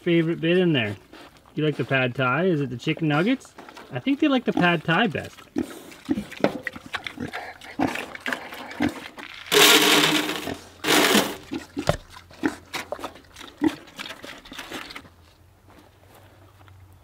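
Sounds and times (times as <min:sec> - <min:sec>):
pigs chewing and smacking: 0:00.0 - 0:09.7, 0:10.5 - 0:15.6
harsh pig calls: 0:04.0 - 0:09.2, 0:11.0 - 0:15.0.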